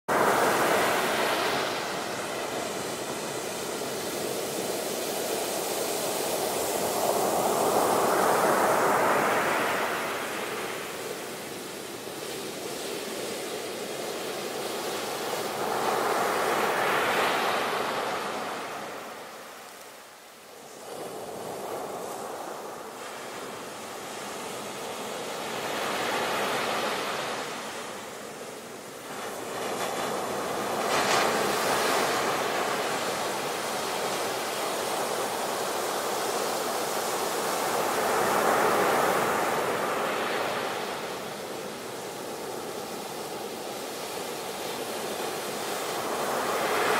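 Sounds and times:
ocean surf breaking: 0:00.1 - 0:19.8, 0:20.5 - 0:46.9.

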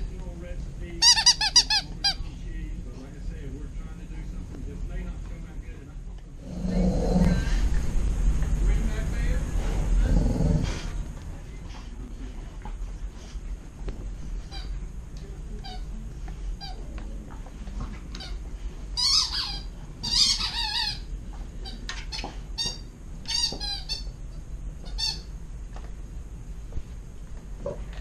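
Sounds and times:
squeaky toy squeaking: 0:01.0 - 0:02.2, 0:19.0 - 0:21.1.

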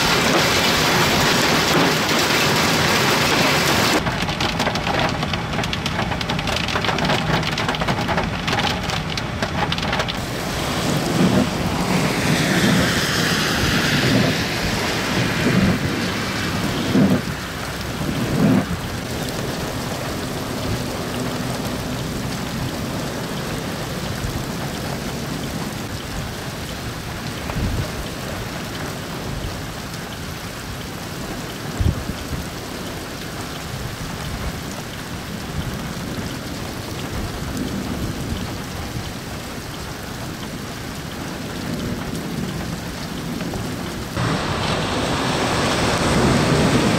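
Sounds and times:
heavy rain and hail: 0:00.0 - 0:46.9
low thumps and rumbles: 0:04.0 - 0:12.9.

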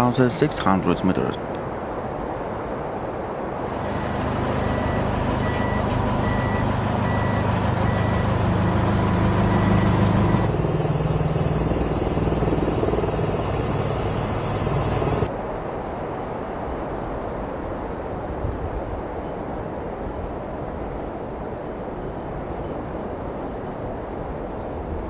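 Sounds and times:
heavy vehicle engine running: 0:03.7 - 0:15.3
reversing alarm beeping: 0:03.7 - 0:15.3
steady engine drone: 0:03.7 - 0:15.3.

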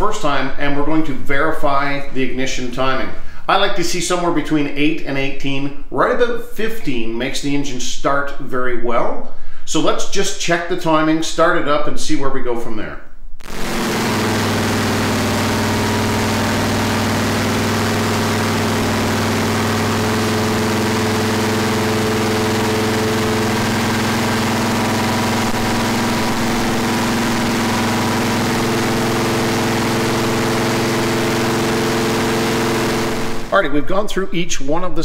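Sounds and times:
engine idling: 0:13.4 - 0:33.5.

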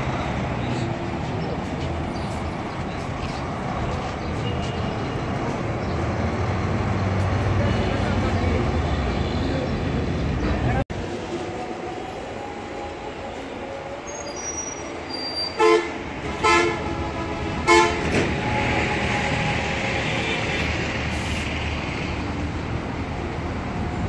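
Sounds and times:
bus horn blasts: 0:15.4 - 0:20.7.

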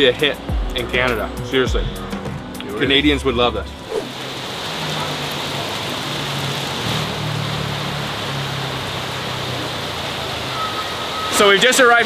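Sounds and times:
heavy rain on street: 0:03.8 - 0:12.0.

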